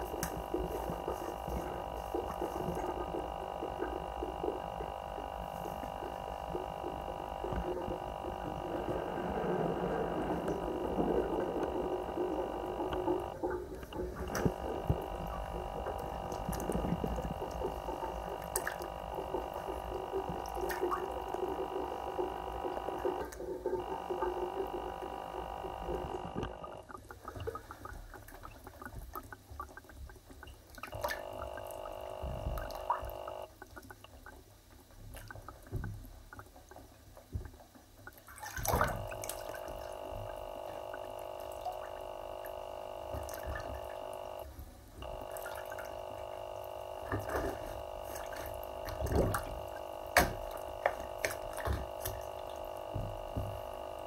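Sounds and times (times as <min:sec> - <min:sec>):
bath tap running: 0:00.0 - 0:26.9, 0:30.9 - 0:33.5, 0:38.4 - 0:54.0
footsteps splashing in water: 0:47.1 - 0:53.6.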